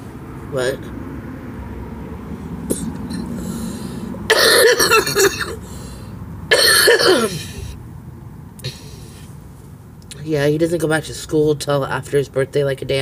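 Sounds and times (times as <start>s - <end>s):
woman coughing: 4.3s - 5.6s, 6.5s - 7.6s.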